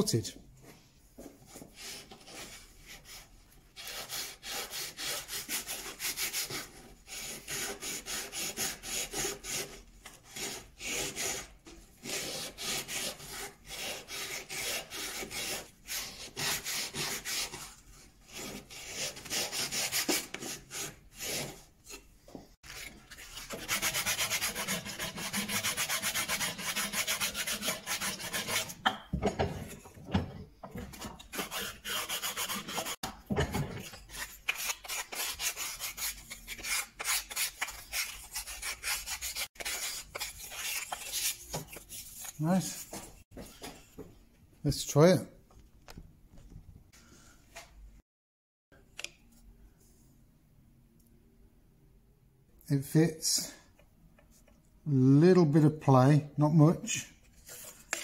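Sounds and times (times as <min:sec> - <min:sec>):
sandpaper rubbing wood: 0:01.8 - 0:17.7, 0:18.3 - 0:21.6, 0:22.7 - 0:28.8, 0:31.3 - 0:33.0, 0:34.1 - 0:43.2.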